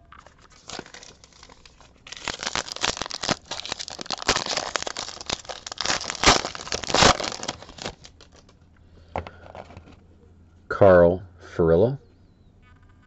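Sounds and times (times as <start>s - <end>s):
foil wrapper crinkling: 0.2s - 8.5s.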